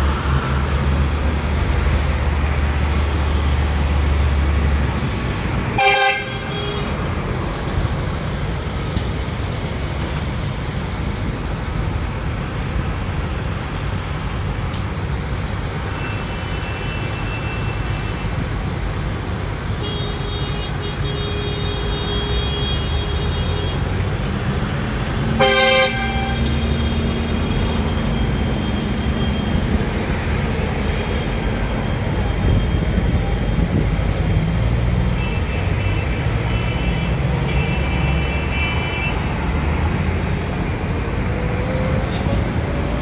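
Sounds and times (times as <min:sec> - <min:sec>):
tractor diesel engines rumbling: 0:00.0 - 0:43.0
loud horn blast: 0:05.8 - 0:06.9, 0:25.3 - 0:28.1.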